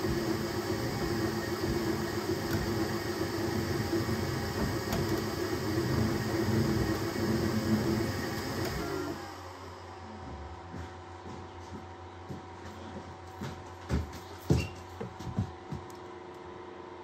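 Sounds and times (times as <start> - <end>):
printer fans and motors humming: 0.0 - 17.0.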